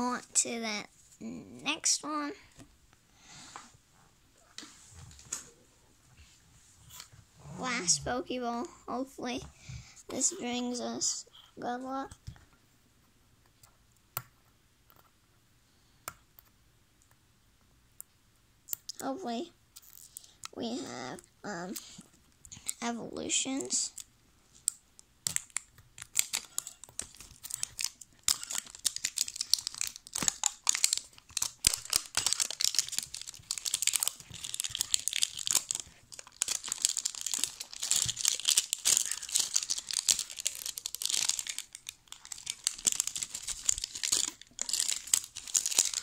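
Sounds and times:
plastic wrap tearing and crinkling: 0:25.2 - 0:46.0.

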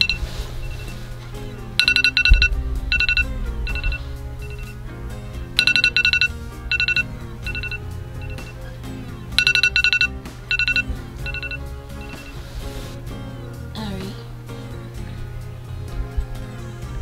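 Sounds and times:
phone alarm high beeps: 0:00.0 - 0:01.0, 0:01.8 - 0:04.8, 0:05.6 - 0:08.7, 0:09.4 - 0:12.4.

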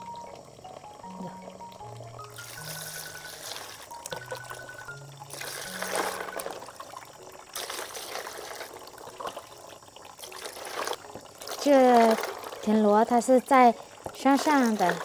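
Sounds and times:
water splashing over shells: 0:02.2 - 0:15.0.

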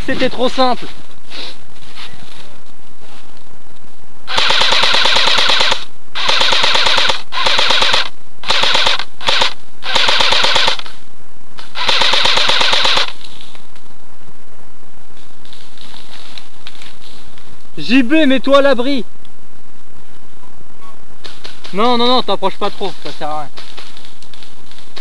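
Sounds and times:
airsoft rifle firing full-auto: 0:04.3 - 0:10.9, 0:11.7 - 0:13.2.

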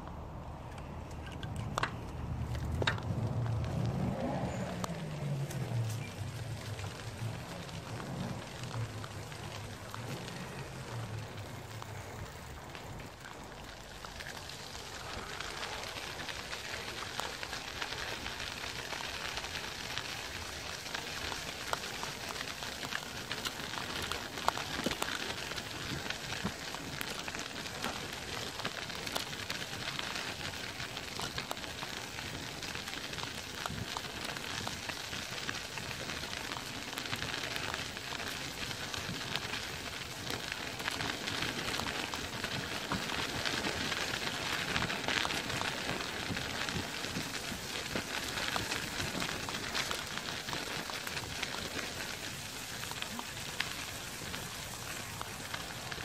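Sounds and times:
tyres rolling over grit and leaves: 0:00.8 - 0:56.0.

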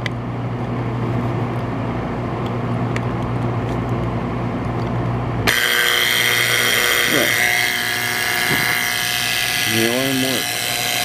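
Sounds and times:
alarm clock buzzer: 0:05.5 - 0:11.0
alarm clock hum: 0:05.5 - 0:11.0.

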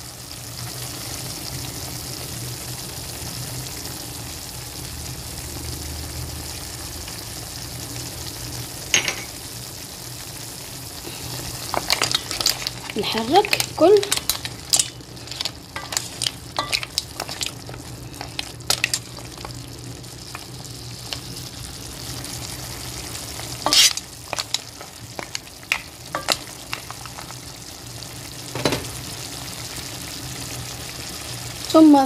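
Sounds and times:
seafood sizzling in a pan: 0:00.0 - 0:32.0
spoon and shells knocking pan: 0:08.9 - 0:09.4, 0:11.6 - 0:19.6, 0:20.2 - 0:21.4, 0:23.6 - 0:27.4, 0:28.5 - 0:28.9.

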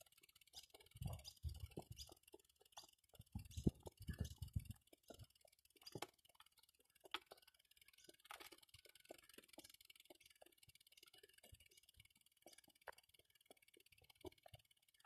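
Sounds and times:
faint low rumbles: 0:03.2 - 0:05.4.

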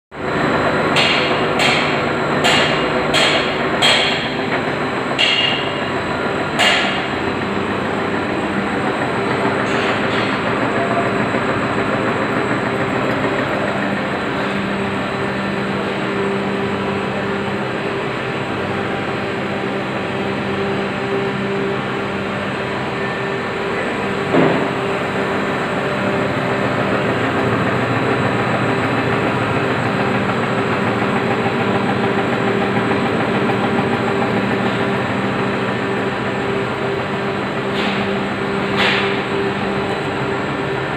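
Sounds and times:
gear shaper mechanical hum: 0:00.2 - 0:40.9
sharp knocks: 0:00.9 - 0:04.6, 0:05.2 - 0:05.8, 0:06.6 - 0:07.2, 0:24.3 - 0:24.8.

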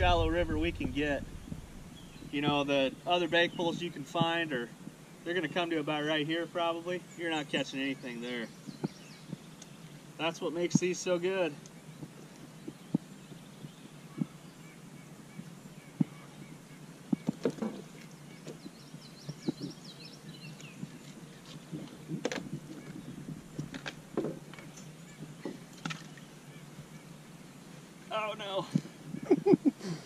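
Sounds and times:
bird chirping: 0:00.0 - 0:29.6
small water splashes: 0:25.6 - 0:26.3.

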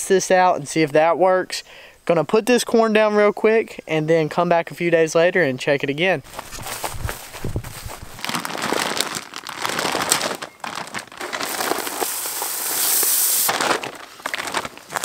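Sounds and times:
bag crinkling and rustling: 0:06.3 - 0:15.0
corn kernels pouring onto ground: 0:08.2 - 0:15.0.

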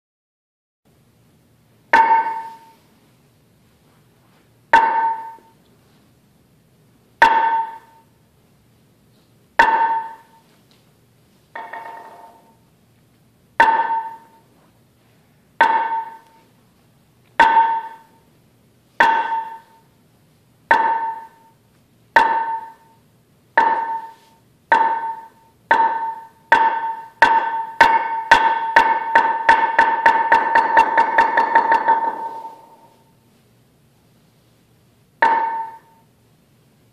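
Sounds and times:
mallet striking wooden board: 0:01.9 - 0:02.8, 0:04.7 - 0:05.6, 0:07.2 - 0:08.1, 0:09.6 - 0:10.4, 0:11.6 - 0:12.6, 0:13.6 - 0:14.5, 0:15.6 - 0:16.4, 0:17.4 - 0:18.2, 0:19.0 - 0:19.9, 0:20.7 - 0:33.1, 0:35.2 - 0:36.0.

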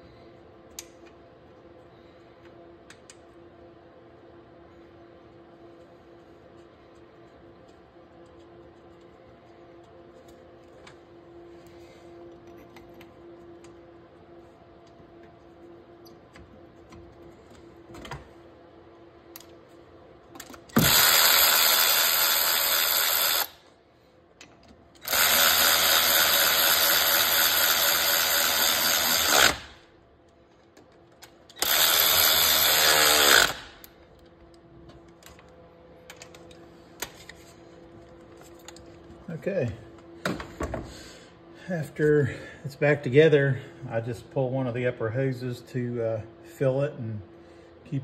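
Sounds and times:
electric ratchet running: 0:20.8 - 0:23.6, 0:25.0 - 0:29.8, 0:31.6 - 0:33.9.

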